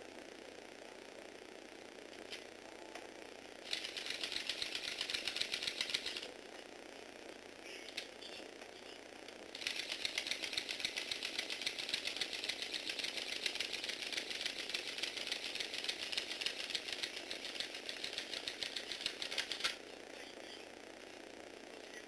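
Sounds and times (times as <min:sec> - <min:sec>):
toy engine model clicking rattle: 0:03.7 - 0:06.3, 0:09.6 - 0:19.8.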